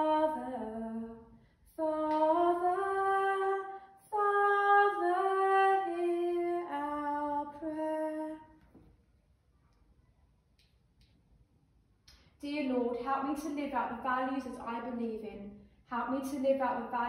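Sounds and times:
woman singing unaccompanied: 0.0 - 8.6.

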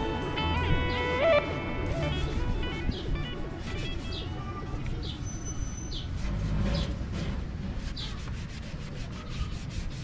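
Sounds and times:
bird chirping: 0.0 - 7.0
cloth rubbing a wheel: 5.9 - 10.0.

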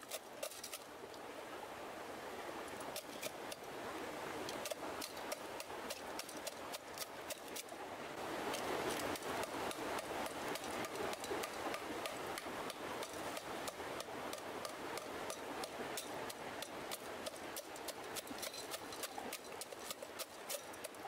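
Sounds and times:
stick pounding charcoal in metal pot: 9.0 - 15.4.

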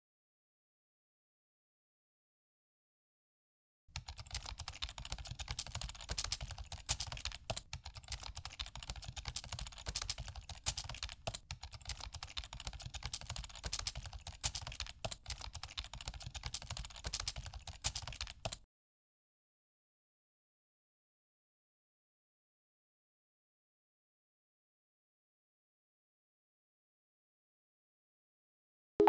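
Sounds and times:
rapid keyboard typing: 4.0 - 18.6.

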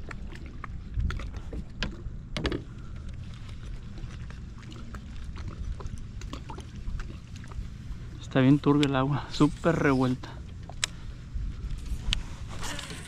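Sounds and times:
water lapping against kayak hull: 0.0 - 8.5
wind rumbling on microphone: 0.0 - 8.6, 9.2 - 13.0.

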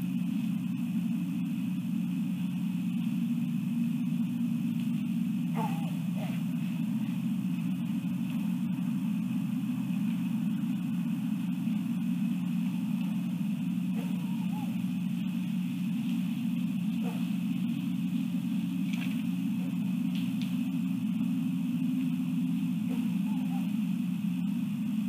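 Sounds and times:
low rumble: 0.0 - 25.0
brief wavering calls: 5.5 - 21.0, 22.5 - 24.8.

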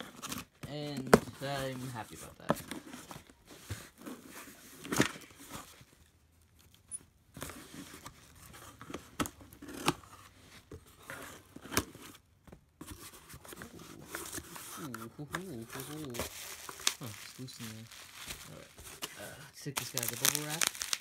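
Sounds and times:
cardboard box flaps tearing: 19.8 - 21.0.

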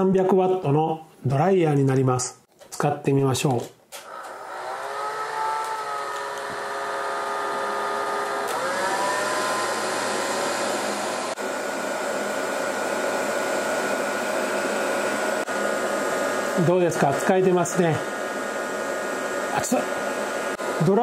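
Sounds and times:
hair dryer running: 4.0 - 21.0.

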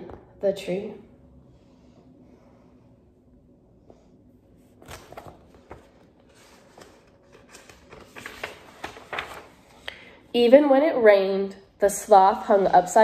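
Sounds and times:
book pages rustling: 4.6 - 9.9.

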